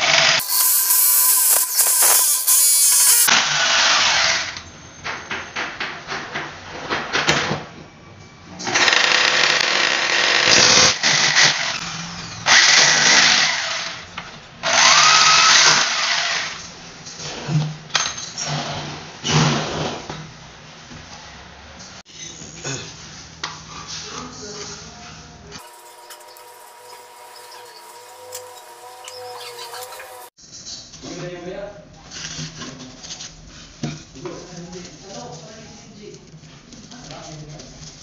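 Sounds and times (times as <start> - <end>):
power drill boring into wall: 0.0 - 3.3, 14.6 - 16.5.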